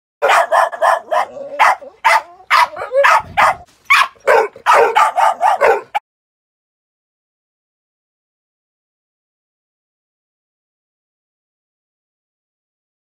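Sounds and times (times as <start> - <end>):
dog barking sharply: 0.2 - 6.0.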